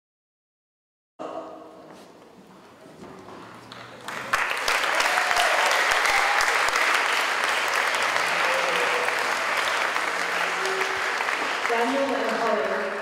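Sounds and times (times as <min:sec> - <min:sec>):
audience applauding: 0:03.6 - 0:13.0.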